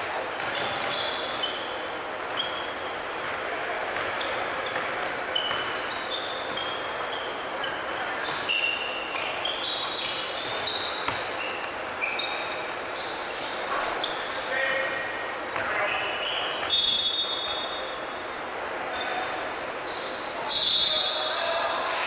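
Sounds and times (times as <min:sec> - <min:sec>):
sneakers squeaking on gym floor: 0:00.0 - 0:14.8, 0:15.5 - 0:21.8
basketball bouncing: 0:03.9 - 0:05.8, 0:10.4 - 0:11.3.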